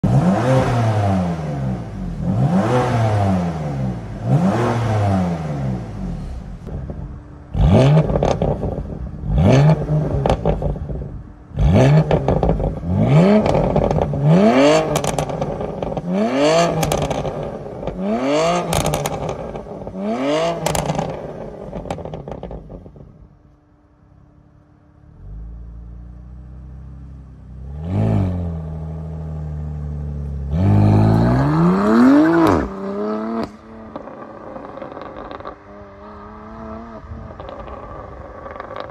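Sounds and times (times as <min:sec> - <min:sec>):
car engine revving: 0:00.0 - 0:23.6, 0:24.2 - 0:38.9
car engine idling: 0:05.8 - 0:27.8.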